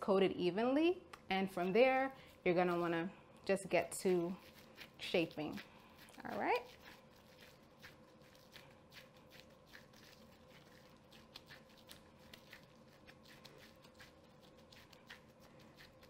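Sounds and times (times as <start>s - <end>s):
gloved hands patting raw meat: 3.9s - 16.0s.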